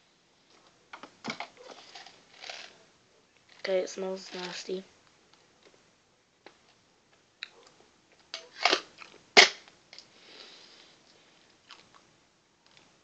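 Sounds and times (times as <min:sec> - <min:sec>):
hard candy being crunched: 0:01.7 - 0:02.8, 0:08.5 - 0:09.7.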